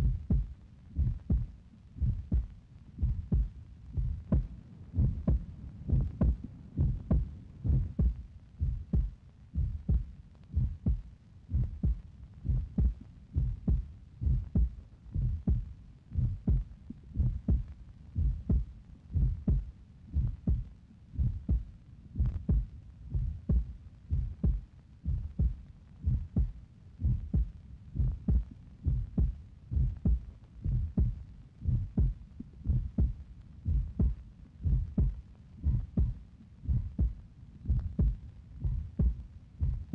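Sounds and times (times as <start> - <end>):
low heartbeat-like thumps: 0.0 - 39.9.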